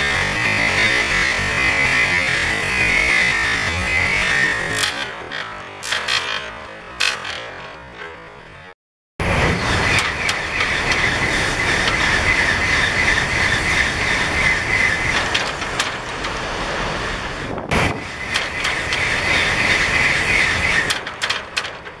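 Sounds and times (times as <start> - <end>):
high-speed train passing: 9.2 - 21.4.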